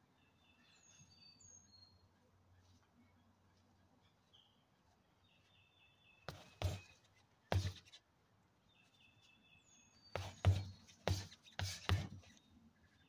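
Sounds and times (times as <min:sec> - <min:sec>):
boxing gloves punching tires: 0:10.2 - 0:11.2.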